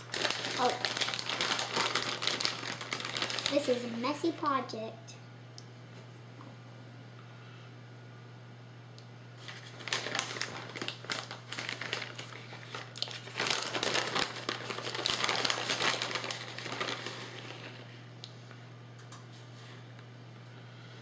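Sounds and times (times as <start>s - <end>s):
plastic bag crinkling: 0.0s - 4.4s, 9.4s - 17.9s.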